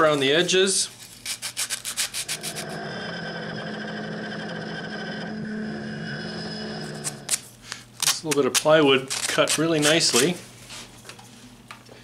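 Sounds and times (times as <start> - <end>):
fingers rubbing on wood: 1.4 - 3.1.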